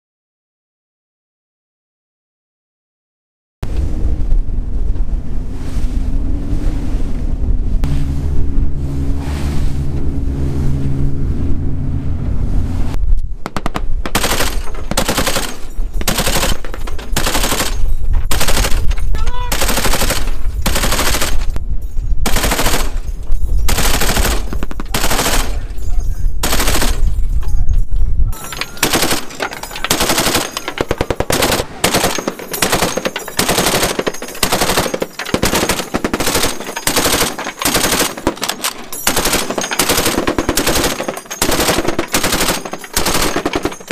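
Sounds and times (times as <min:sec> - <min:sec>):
boat engine drone: 0:03.7 - 0:13.4
machine gun bursts: 0:13.5 - 0:21.5, 0:22.2 - 0:23.0, 0:23.7 - 0:25.7, 0:26.4 - 0:27.1, 0:28.4 - 0:43.9.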